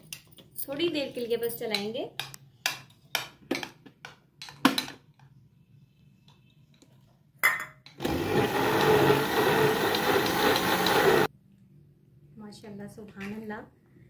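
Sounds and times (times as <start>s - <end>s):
electric blender running: 8.0s - 11.3s.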